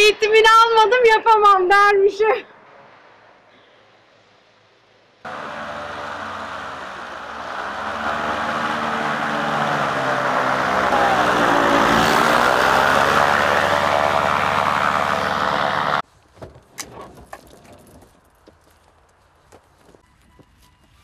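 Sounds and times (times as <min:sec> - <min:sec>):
paramotor engine and propeller: 0:05.3 - 0:16.0.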